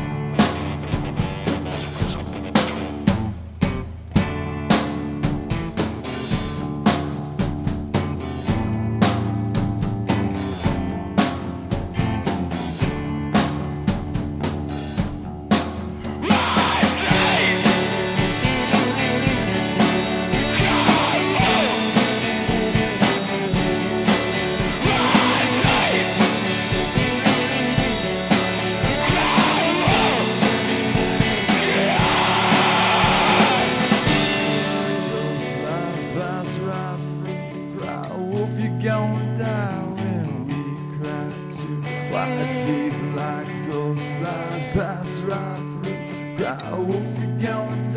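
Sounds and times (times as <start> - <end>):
indie rock band playing: 0.0 - 47.9
drum hits: 11.7 - 35.8.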